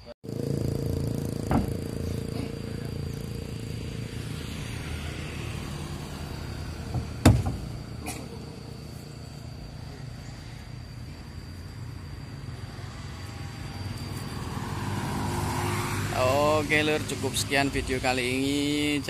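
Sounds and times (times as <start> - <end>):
truck engine idling: 0.3 - 10.0
heavy wooden log thuds: 1.4 - 1.9, 6.9 - 7.7.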